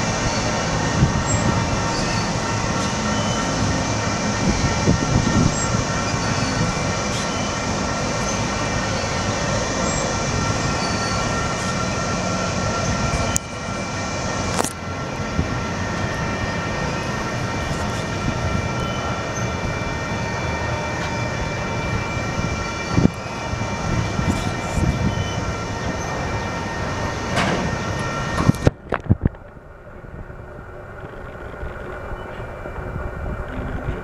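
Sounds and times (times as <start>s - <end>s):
train wheels rumbling on rail: 0.0s - 34.0s
high ringing tones: 18.5s - 20.6s.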